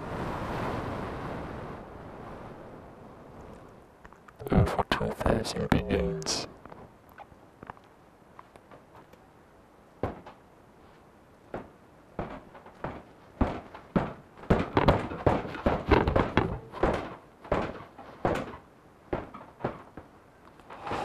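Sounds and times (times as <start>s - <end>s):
knocks and thuds: 10.0s - 10.4s, 11.5s - 20.2s.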